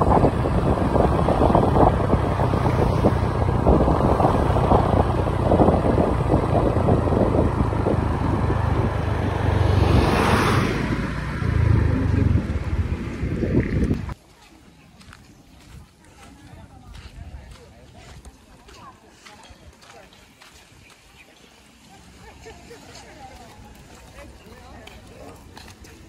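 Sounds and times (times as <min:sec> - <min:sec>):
wind buffeting microphone: 0:00.0 - 0:14.2
vehicle road noise rumble: 0:00.0 - 0:26.0.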